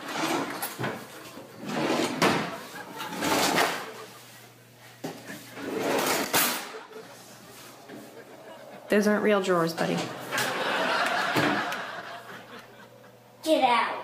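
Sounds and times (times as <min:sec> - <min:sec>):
wooden drawers sliding: 0:00.0 - 0:04.0, 0:05.0 - 0:06.7.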